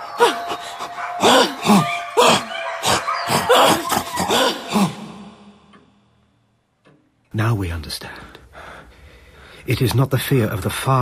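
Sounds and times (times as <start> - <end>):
man's breathy wordless cries: 0.1 - 2.5, 3.3 - 5.5.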